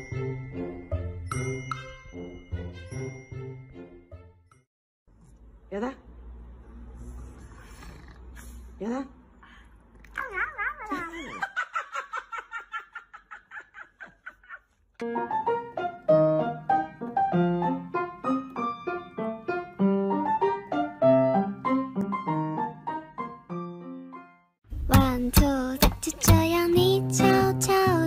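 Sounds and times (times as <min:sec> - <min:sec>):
piano music: 0:15.0 - 0:28.0.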